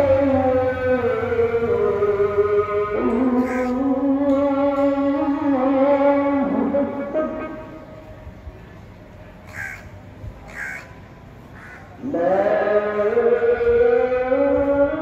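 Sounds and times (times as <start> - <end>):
distant call to prayer: 0.0 - 15.0
crow cawing: 3.4 - 3.8, 9.4 - 12.0.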